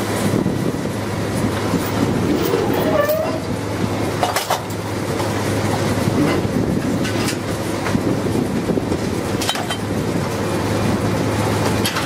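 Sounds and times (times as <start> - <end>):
drilling rig machinery humming: 0.0 - 12.0
brief machine squeal: 2.5 - 3.5.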